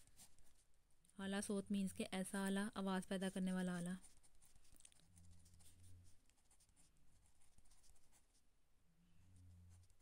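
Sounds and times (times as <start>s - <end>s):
ballpoint pen scratching paper: 0.0s - 0.7s, 3.0s - 8.4s, 9.4s - 10.0s
faint low hum: 0.0s - 10.0s.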